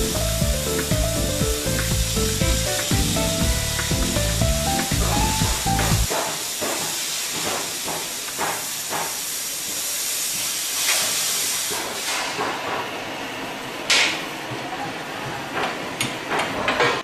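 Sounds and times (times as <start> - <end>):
machine humming: 0.0 - 6.1
cutting torch hissing: 0.0 - 12.5.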